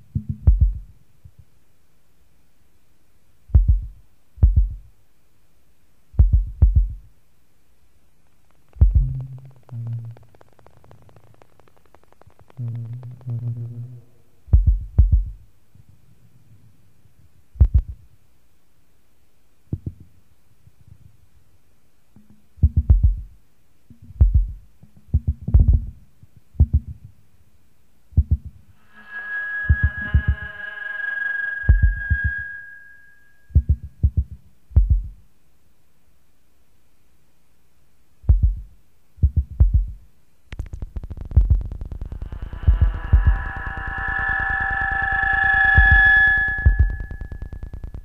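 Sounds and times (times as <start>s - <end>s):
deep low thuds with clicks: 0.0s - 1.4s, 3.5s - 4.9s, 6.2s - 7.1s, 8.7s - 10.8s, 14.5s - 15.5s, 17.6s - 18.1s, 22.6s - 26.0s, 26.6s - 27.1s, 28.2s - 28.6s, 33.6s - 35.2s, 38.2s - 43.9s
low droning tones: 8.8s - 15.4s, 28.7s - 33.5s, 40.6s - 48.0s
high whine with buzz: 28.7s - 33.5s, 40.5s - 48.0s.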